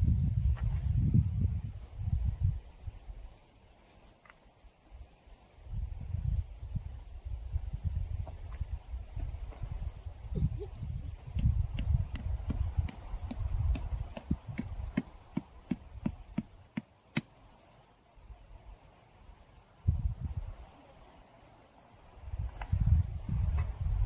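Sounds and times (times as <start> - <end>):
wind buffeting microphone: 0.0 - 2.7, 5.7 - 16.6, 19.9 - 20.6, 22.2 - 24.0
crickets droning: 0.0 - 24.0
tent peg being hammered: 11.4 - 17.3.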